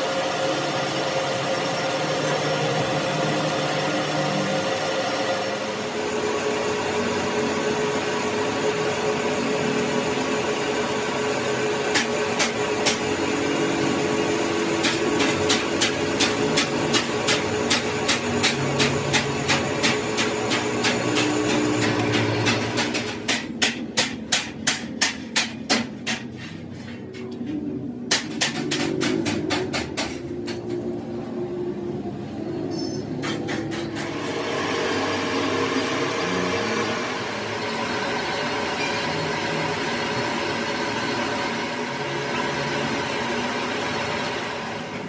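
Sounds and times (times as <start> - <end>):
steady rushing machine noise: 0.0 - 26.7, 33.4 - 45.0
hammer striking metal: 14.6 - 27.4, 28.0 - 30.8, 32.8 - 34.2.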